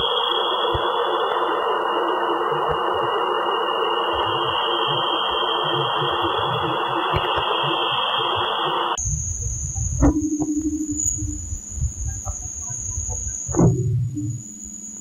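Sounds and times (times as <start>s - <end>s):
high whistling tone: 0.0s - 15.0s
steady radio-like hiss: 0.0s - 15.0s
faint low thumps: 9.0s - 14.8s.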